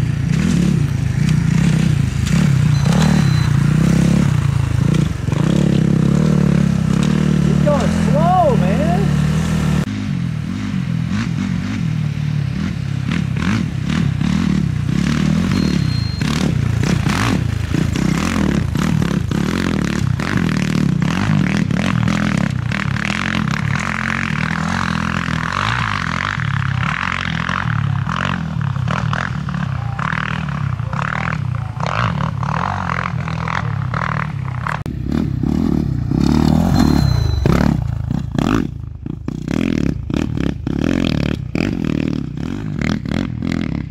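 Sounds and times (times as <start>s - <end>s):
dirt bikes revving: 0.0s - 43.9s.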